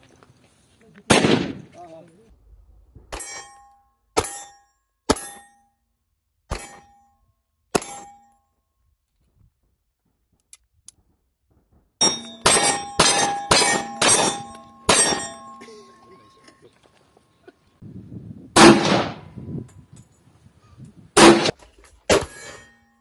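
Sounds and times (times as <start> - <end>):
steel plates clanging: 12.0 - 16.7
handgun shots: 21.2 - 21.5.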